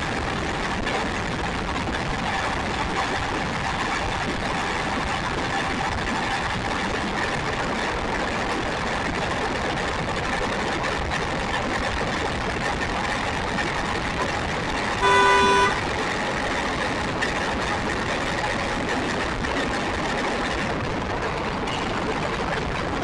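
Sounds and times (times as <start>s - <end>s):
road and wind noise: 0.0s - 23.0s
horn toot: 15.0s - 15.8s.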